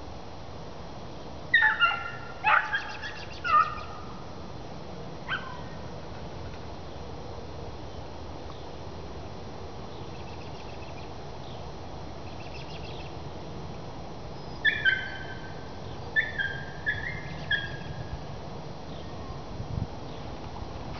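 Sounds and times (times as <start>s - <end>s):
dog yelping: 1.6s - 3.9s, 5.3s - 5.7s, 14.7s - 15.3s.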